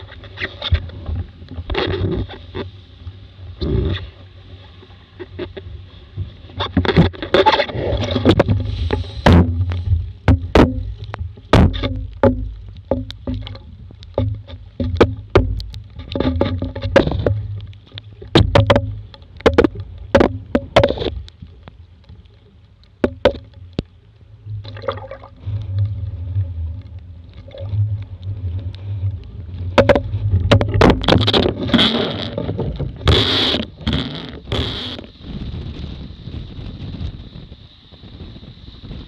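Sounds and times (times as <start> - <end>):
water splashing and sloshing: 0.0 - 38.2
sharp knocks: 9.2 - 10.9, 11.5 - 13.5, 18.4 - 21.0
wind buffeting microphone: 34.5 - 39.0.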